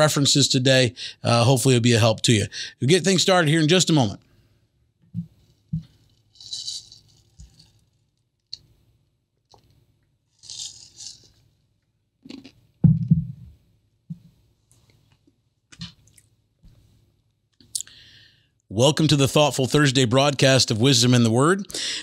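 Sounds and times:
sips and swallows: 0:12.3 - 0:12.6.

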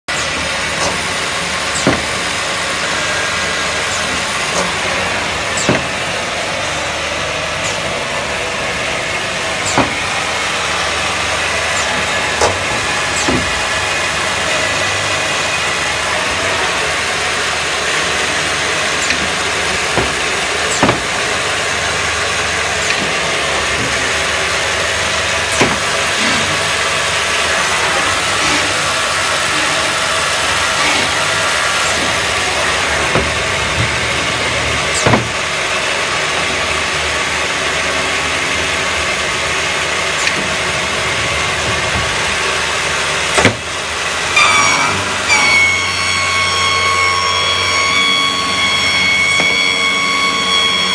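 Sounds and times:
boring machine whirring: 0:00.1 - 0:50.9
sharp clicks and knocks: 0:00.2 - 0:01.1, 0:01.7 - 0:02.3, 0:19.0 - 0:21.3, 0:22.8 - 0:24.0, 0:25.5 - 0:26.7, 0:35.0 - 0:35.4.

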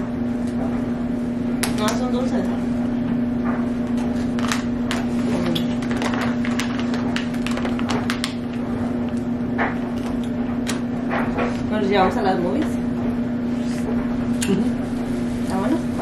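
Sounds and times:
steady low hum: 0:00.0 - 0:16.0
foil and bubble wrap crinkling: 0:03.9 - 0:08.6.

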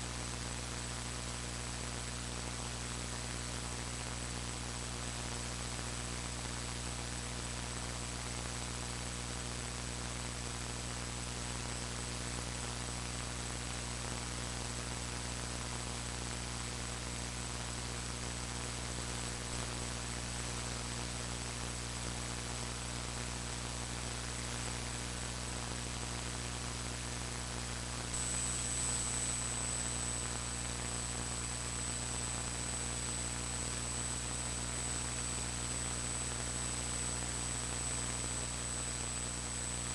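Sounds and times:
mains hum and hiss: 0:00.0 - 0:39.9
thin high whine: 0:28.0 - 0:39.9.

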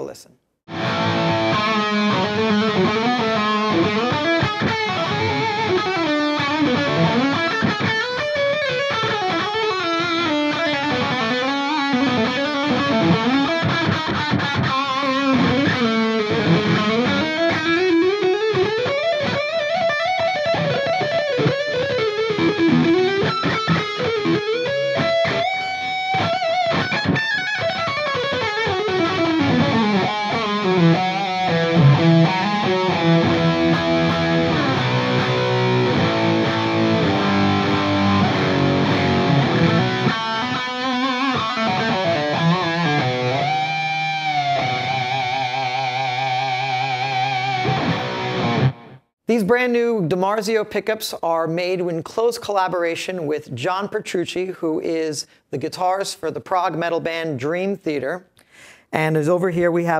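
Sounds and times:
electric guitar lead runs: 0:00.7 - 0:49.0.

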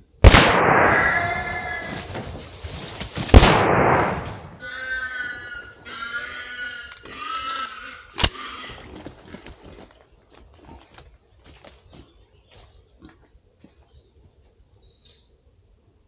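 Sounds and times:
gunshot with echo: 0:00.2 - 0:01.5, 0:03.3 - 0:04.6
wild boar squealing: 0:00.9 - 0:02.2, 0:04.6 - 0:09.0.

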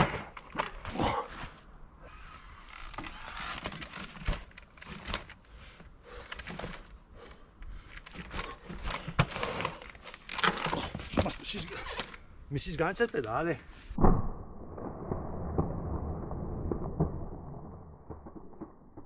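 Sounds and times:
bike knocks and rattles: 0:03.0 - 0:05.4, 0:08.0 - 0:11.6.

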